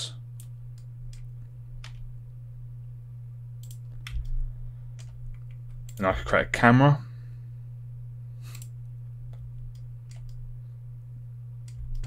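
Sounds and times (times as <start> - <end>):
low electrical hum: 0.0 - 12.0
computer mouse clicks: 3.6 - 4.4, 8.5 - 10.4.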